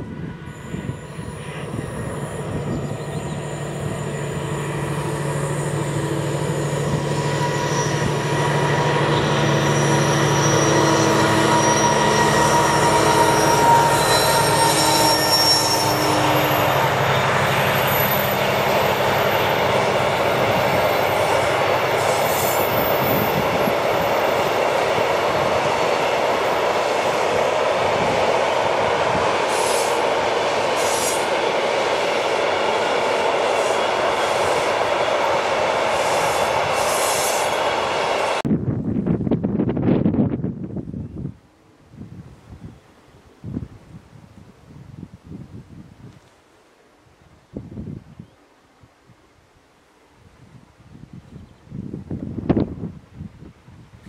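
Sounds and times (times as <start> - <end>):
locomotive engine hum: 0.1 - 38.4
wheels squealing: 0.6 - 24.5.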